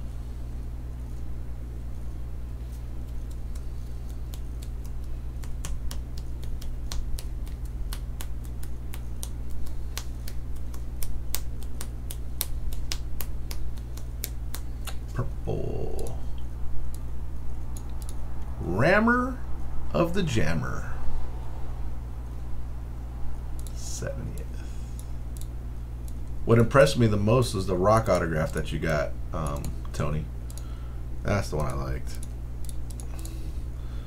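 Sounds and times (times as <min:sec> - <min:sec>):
steady low hum: 0:00.0 - 0:34.0
keyboard and mouse clicking: 0:03.0 - 0:15.0, 0:17.7 - 0:18.2, 0:31.6 - 0:33.4.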